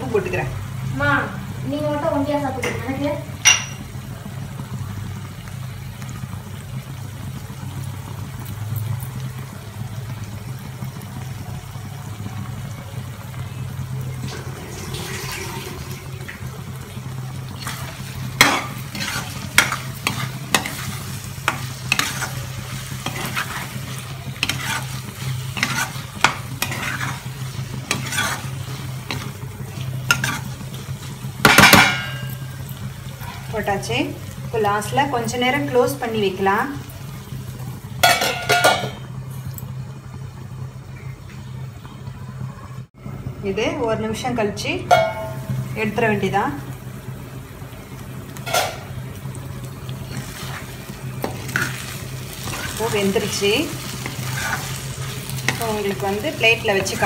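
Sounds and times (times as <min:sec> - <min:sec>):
spatula scraping a pan: 0:17.6 - 0:30.7, 0:50.1 - 0:57.0.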